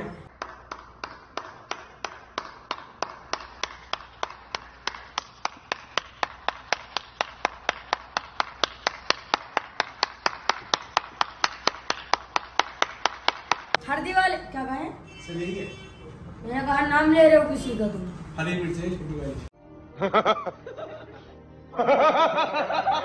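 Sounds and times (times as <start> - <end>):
person slow clapping: 0.3 - 13.8.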